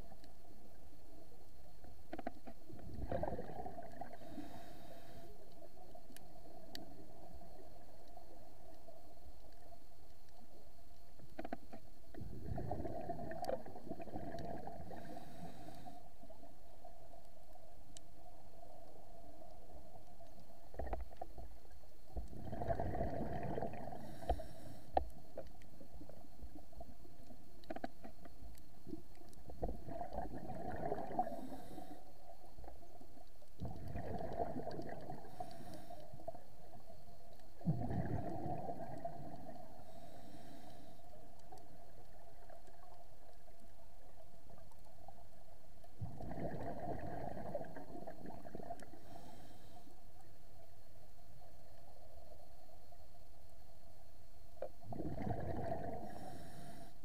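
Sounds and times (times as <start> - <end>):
exhaled bubbles gurgling: 2.2 - 4.7, 12.1 - 17.1, 22.1 - 24.5, 28.8 - 40.0, 45.9 - 49.2, 54.6 - 56.6
regulator inhale hiss: 4.1 - 5.6, 14.9 - 16.4, 23.9 - 25.5, 31.2 - 32.4, 35.2 - 36.8, 39.5 - 41.3, 48.8 - 50.4, 55.9 - 57.0.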